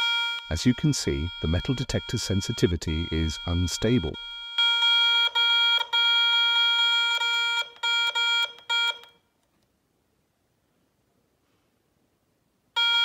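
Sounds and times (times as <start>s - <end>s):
metal detector tone: 0.0s - 4.5s.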